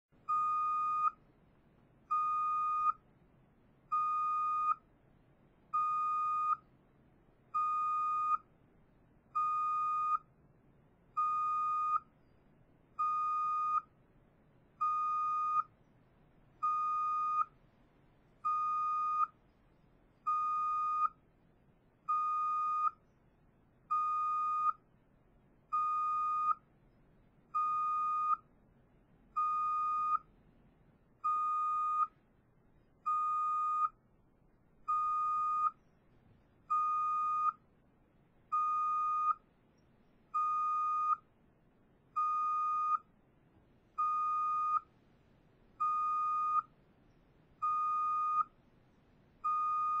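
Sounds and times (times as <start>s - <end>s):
truck reverse alarm beeping: 0.2s - 1.2s, 2.1s - 3.0s, 3.9s - 4.9s, 5.8s - 6.7s, 7.6s - 8.5s, 9.4s - 10.3s, 11.2s - 12.1s, 13.0s - 14.0s, 14.8s - 15.7s, 16.6s - 17.6s, 18.5s - 19.4s, 20.2s - 21.2s, 22.1s - 23.0s, 23.9s - 24.8s, 25.8s - 26.6s, 27.6s - 28.5s, 29.4s - 30.3s, 31.2s - 32.2s, 33.1s - 34.0s, 34.9s - 35.8s, 36.7s - 37.6s, 38.5s - 39.4s, 40.4s - 41.3s, 42.2s - 43.1s, 44.0s - 44.9s, 45.8s - 46.7s, 47.6s - 48.6s, 49.4s - 50.0s.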